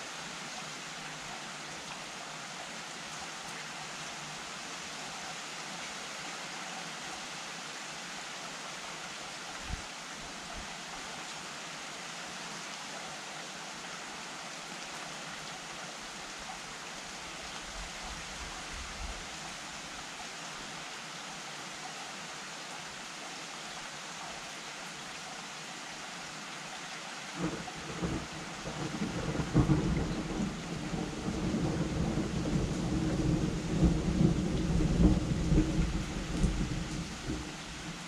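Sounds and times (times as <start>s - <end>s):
steady rain hiss: 0.0s - 38.0s.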